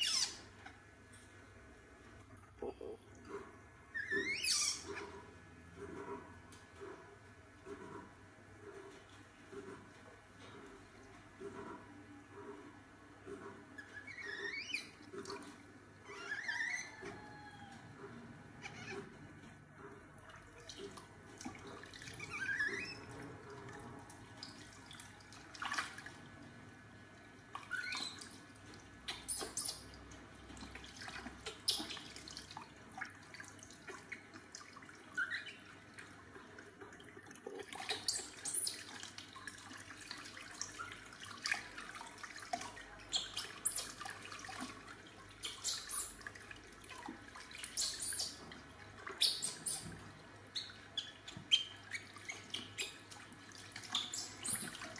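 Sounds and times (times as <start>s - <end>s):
baby monkey squeaking: 0.0s - 0.4s, 4.0s - 4.9s, 29.1s - 29.8s, 45.4s - 46.1s, 47.7s - 48.4s, 49.2s - 49.9s
water splashing into plastic tub: 23.5s - 26.4s, 30.0s - 35.0s, 35.9s - 45.4s.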